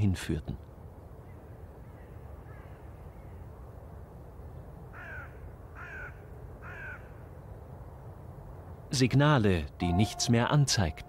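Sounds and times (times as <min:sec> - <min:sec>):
crow cawing: 0:02.4 - 0:02.8, 0:04.9 - 0:07.2.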